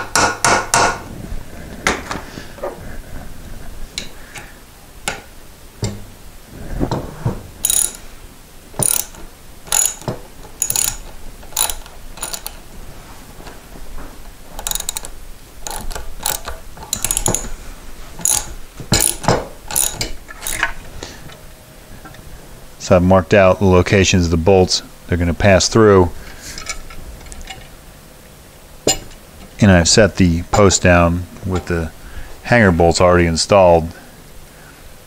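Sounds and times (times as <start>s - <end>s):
socket ratchet clicking: 7.6s - 8.0s, 8.8s - 12.7s, 14.6s - 17.5s, 18.2s - 20.7s.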